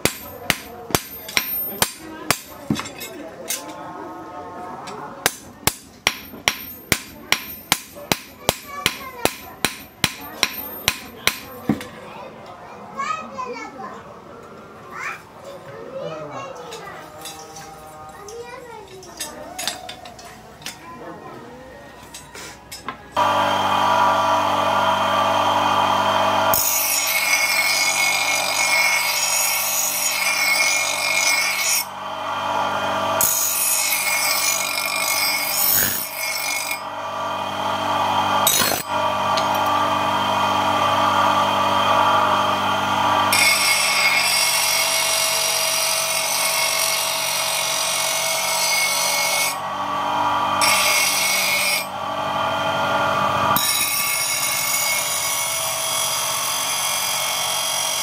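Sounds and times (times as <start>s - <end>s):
bench grinder motor hum: 23.2s - 58.0s
knife blade grinding on wheel: 23.4s - 58.0s.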